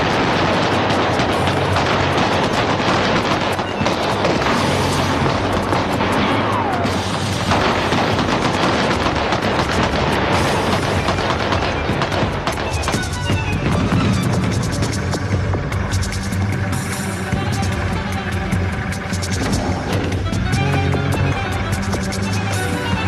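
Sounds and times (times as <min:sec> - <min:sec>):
rapid automatic gunfire: 0:00.0 - 0:16.7
dramatic film music: 0:00.0 - 0:23.0.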